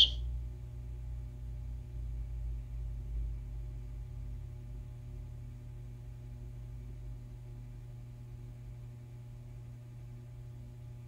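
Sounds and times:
steady hum: 0.0s - 4.0s.

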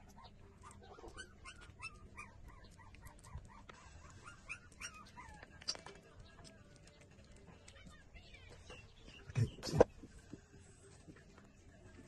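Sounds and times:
puppies squeaking and whimpering: 0.0s - 5.9s.

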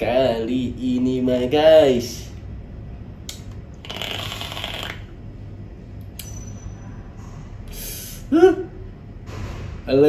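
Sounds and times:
airy hiss of vape drag: 3.8s - 5.0s.

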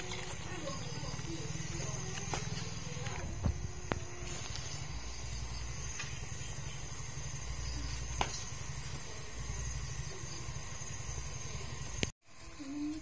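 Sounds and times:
insect trill: 0.0s - 13.0s.

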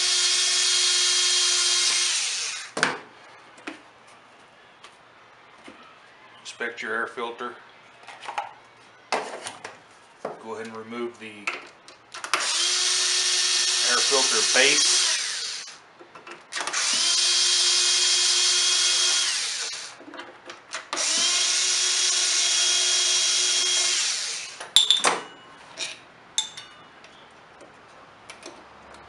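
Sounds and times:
electric screwdriver whirring: 0.0s - 2.8s, 12.3s - 15.8s, 16.5s - 20.0s, 20.8s - 24.6s.

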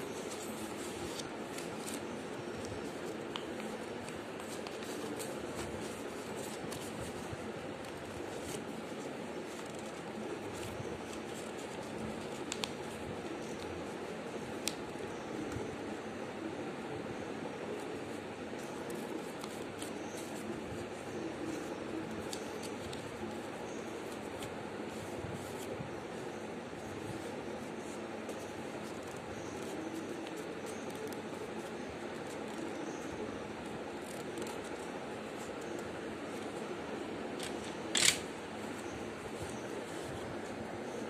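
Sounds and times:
paper crinkling: 0.0s - 15.1s
paper crinkling and creasing: 0.0s - 15.9s, 17.7s - 41.0s
low background rush: 0.0s - 41.0s
steady background hiss: 0.0s - 41.0s.

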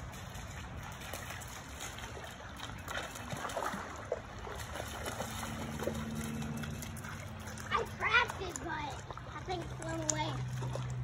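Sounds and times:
creek water trickling: 0.0s - 11.0s
small water splashes: 0.0s - 11.0s.

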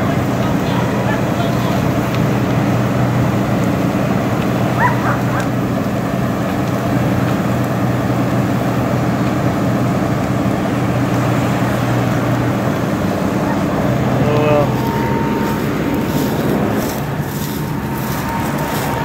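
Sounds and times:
large engine humming: 0.0s - 19.0s
dog yelping: 4.8s - 5.5s.

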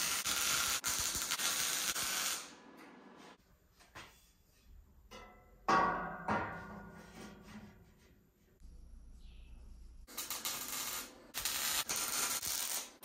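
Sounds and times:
arc welding crackling hiss: 0.0s - 2.5s, 10.1s - 13.0s
steel tube taps and knock: 5.1s - 7.7s.

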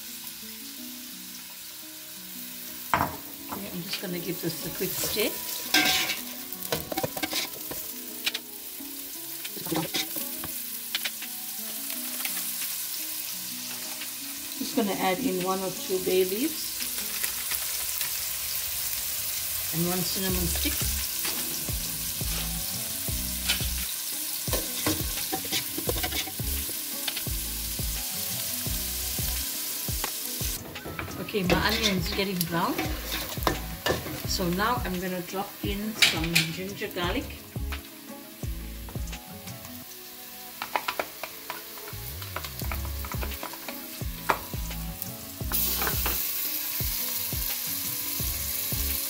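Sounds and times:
onion sizzling in oil: 0.0s - 49.0s
spoon scraping a pot: 5.0s - 6.2s, 6.8s - 7.8s, 9.6s - 10.2s, 30.8s - 34.2s.

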